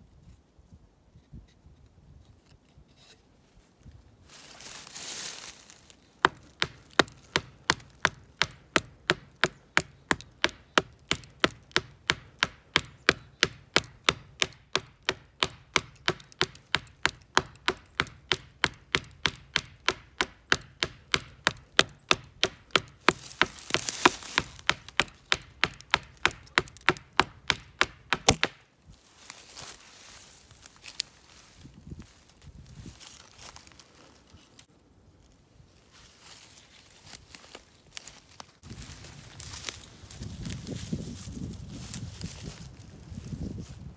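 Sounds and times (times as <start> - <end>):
axe chopping wood: 6.2 - 28.7.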